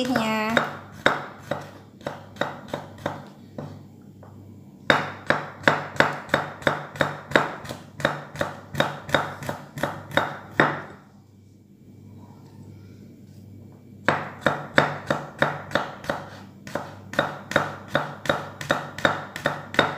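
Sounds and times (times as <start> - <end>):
knife chopping on wooden board: 0.0 - 3.8, 4.9 - 10.9, 14.0 - 19.9.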